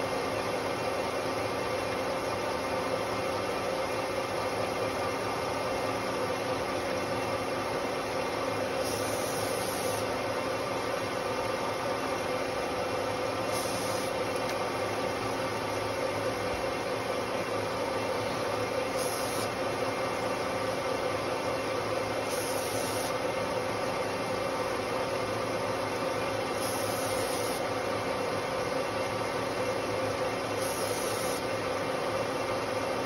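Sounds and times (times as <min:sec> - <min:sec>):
hiss of cutting metal: 0:08.8 - 0:10.1, 0:13.5 - 0:14.2, 0:19.0 - 0:19.5, 0:22.3 - 0:23.2, 0:26.6 - 0:27.6, 0:30.6 - 0:31.5.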